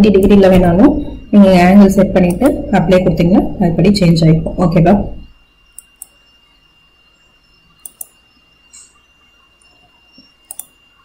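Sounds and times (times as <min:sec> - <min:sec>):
faint high whine: 0:00.0 - 0:11.0
mouse and keyboard clicks: 0:10.2 - 0:10.8.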